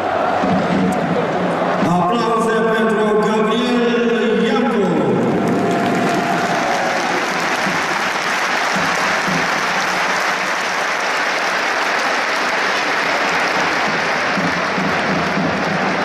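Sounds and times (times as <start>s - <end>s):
crowd clapping: 4.7s - 16.0s.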